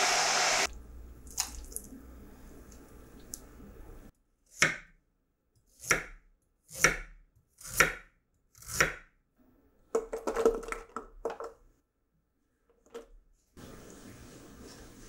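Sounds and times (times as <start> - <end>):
knife chopping on wooden board: 4.6 - 4.9, 5.8 - 9.1.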